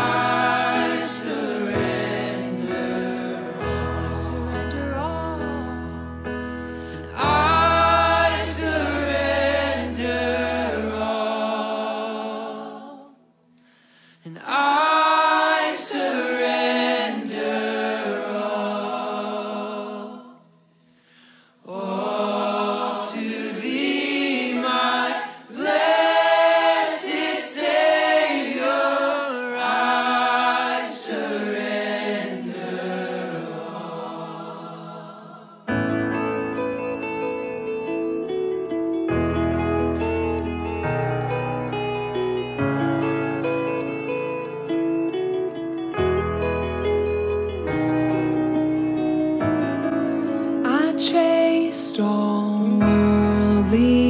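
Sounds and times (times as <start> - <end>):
song with sung vocals: 0.0 - 36.1, 50.4 - 54.0.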